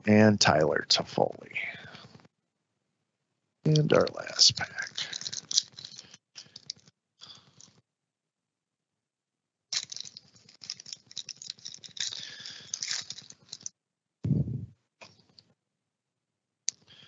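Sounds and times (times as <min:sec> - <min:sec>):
wrapper crinkling and tearing: 0:04.2 - 0:06.8, 0:09.8 - 0:13.7.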